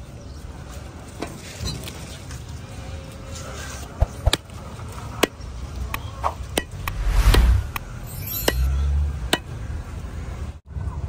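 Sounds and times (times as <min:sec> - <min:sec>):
rush of noise with low rumble: 0:06.7 - 0:08.0.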